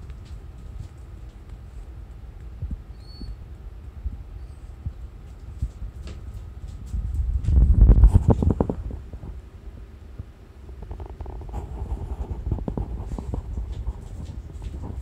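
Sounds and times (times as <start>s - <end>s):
animals clicking on wooden floor: 0.0s - 3.3s, 4.9s - 7.6s, 12.6s - 15.0s
rumbling microphone handling noise: 0.0s - 15.0s.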